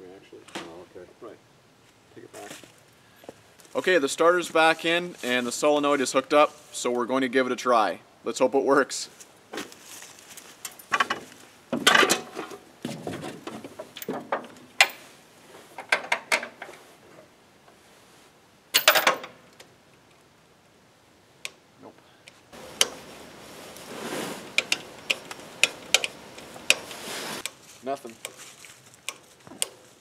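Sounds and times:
rustling handling noise: 9.1 - 19.0, 22.6 - 30.0
metallic clicks and knocks: 15.8 - 16.7, 24.6 - 27.6.

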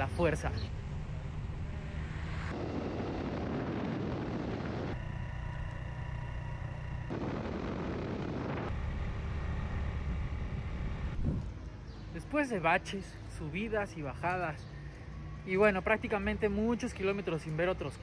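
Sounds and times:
wind rumble on microphone: 0.7 - 12.0
motorcycle engine running: 4.3 - 11.4.

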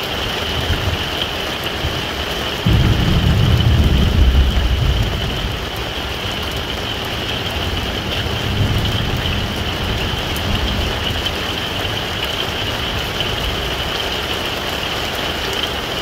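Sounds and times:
heavy rain on tent: 0.0 - 16.0.

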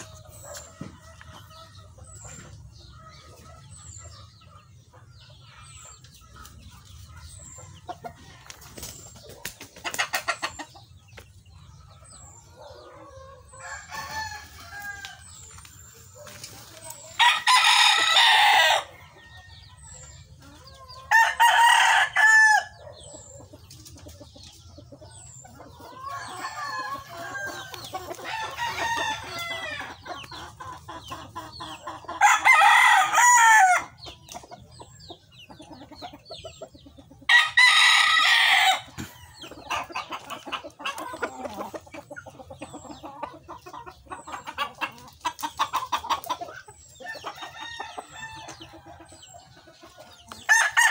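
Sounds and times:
chickens clucking: 0.0 - 50.9
rooster crowing loudly: 32.2 - 33.9, 50.5 - 50.9.

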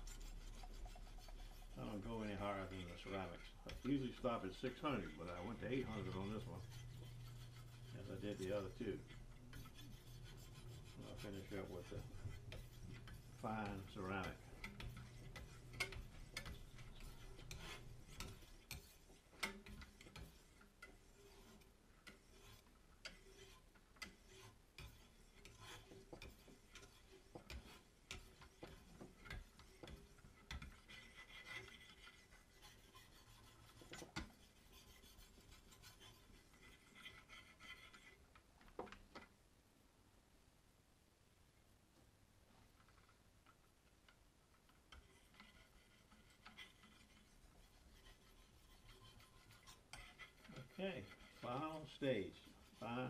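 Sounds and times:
sharpening stone scraping blade: 9.2 - 38.0.

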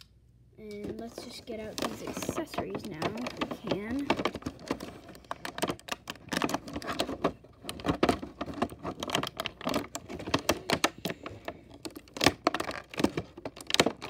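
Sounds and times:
plastic packaging crinkling: 0.7 - 14.0.

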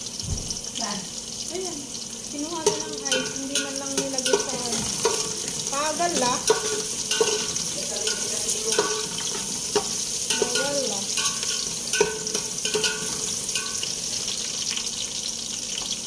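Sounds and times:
food sizzling in pan: 0.0 - 16.0
spatula scraping and knocking pan: 2.6 - 14.4.

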